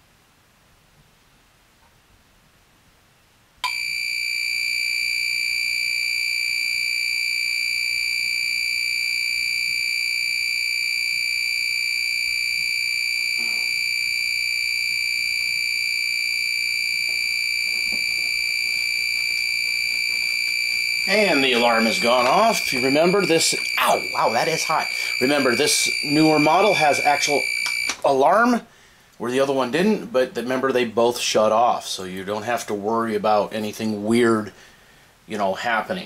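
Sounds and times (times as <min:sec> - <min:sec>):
high-pitched electronic buzz: 0:03.6 - 0:28.0.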